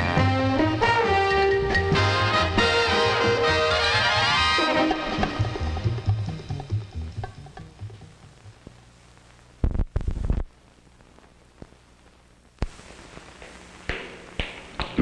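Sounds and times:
music cue: 0.0 - 8.2
soundtrack hiss and hum: 0.0 - 15.0.

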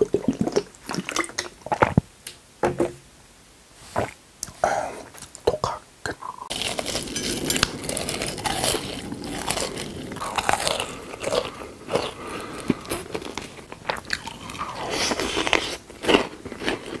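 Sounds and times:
chewing gummy candies: 6.5 - 17.0.

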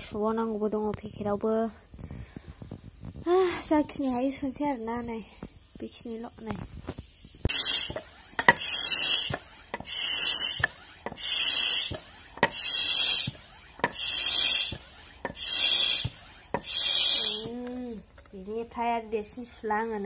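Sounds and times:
hand pump air hiss: 2.0 - 18.2
pump handle knocking: 7.9 - 16.8.

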